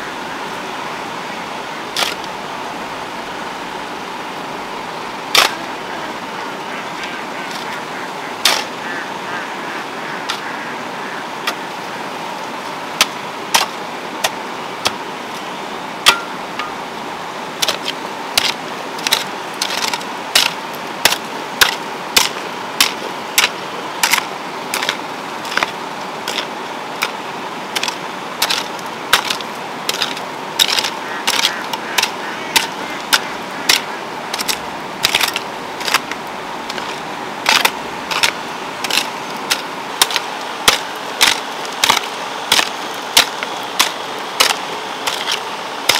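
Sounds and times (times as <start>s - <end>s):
steady background hiss: 0.0s - 45.9s
hoe striking stony soil: 2.0s - 2.3s, 5.3s - 5.7s, 8.4s - 8.8s, 13.0s - 15.0s, 16.0s - 16.8s, 17.6s - 45.9s.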